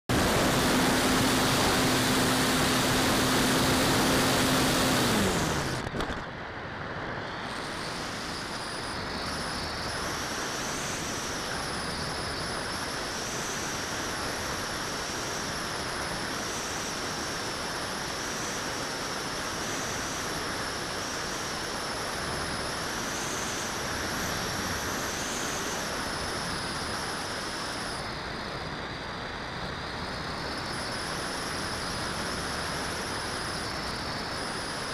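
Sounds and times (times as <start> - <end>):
propeller motor drone: 0.0 - 34.9
air rushing past glider: 0.1 - 11.5.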